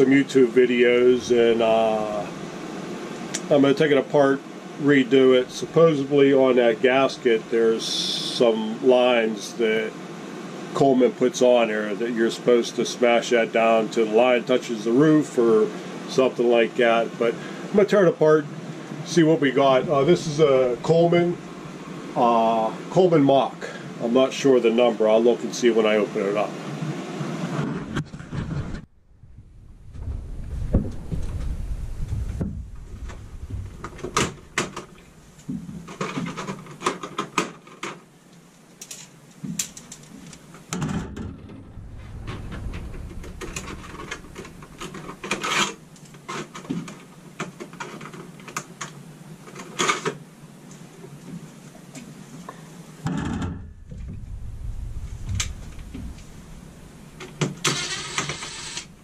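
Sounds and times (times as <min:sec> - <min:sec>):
rustling: 0:27.9 - 0:36.8, 0:39.4 - 0:46.4, 0:53.6 - 0:59.0.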